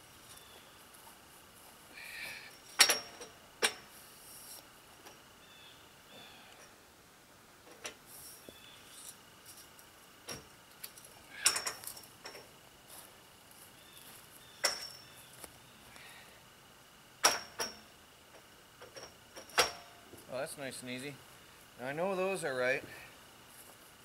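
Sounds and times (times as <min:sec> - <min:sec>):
metal pipes clinking together: 0:02.7 - 0:03.8, 0:11.4 - 0:12.4, 0:14.6 - 0:15.0.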